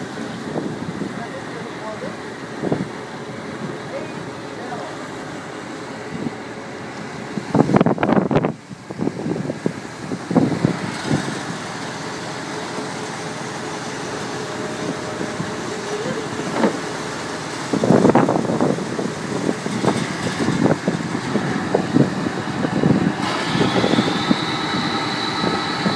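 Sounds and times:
wind buffeting microphone: 0:00.0 - 0:04.6, 0:05.3 - 0:25.9
boat engine running: 0:00.0 - 0:25.9.

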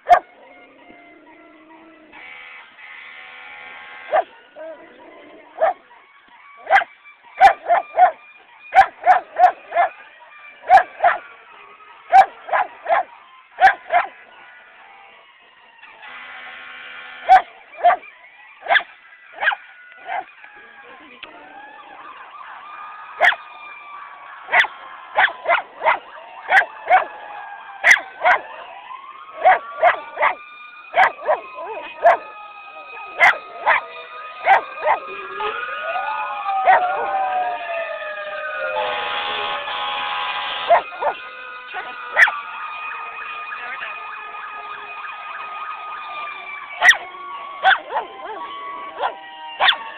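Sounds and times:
dog barking: 0:00.0 - 0:00.3, 0:04.1 - 0:04.8, 0:05.6 - 0:05.8, 0:06.7 - 0:08.2, 0:08.8 - 0:10.0, 0:10.7 - 0:11.2, 0:12.1 - 0:14.2, 0:17.3 - 0:20.3, 0:24.5 - 0:27.1, 0:27.8 - 0:28.5, 0:29.4 - 0:30.4, 0:31.0 - 0:32.2, 0:33.2 - 0:35.0, 0:40.7 - 0:41.2, 0:41.8 - 0:42.3, 0:46.8 - 0:47.0, 0:47.6 - 0:49.8
faint gliding siren: 0:00.0 - 0:49.9.

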